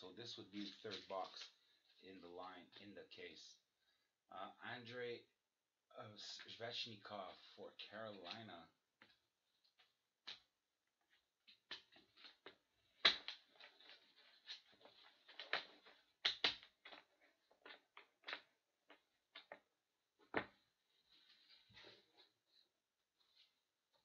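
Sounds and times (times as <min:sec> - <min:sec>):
card packs clicking and rustling: 0:00.6 - 0:01.6, 0:11.5 - 0:19.6.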